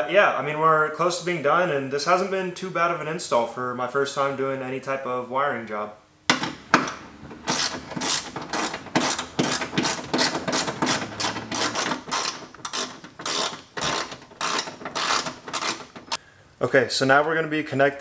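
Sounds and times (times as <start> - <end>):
ratchet wrench clicking: 7.5 - 16.2.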